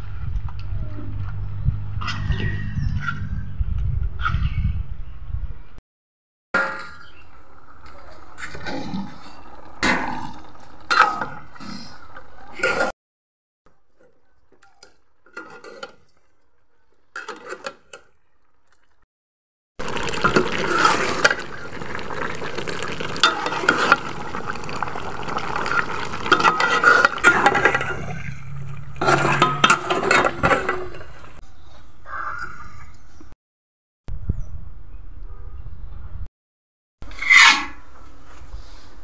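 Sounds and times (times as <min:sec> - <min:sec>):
sauce sloshing: 0:19.8 - 0:31.3.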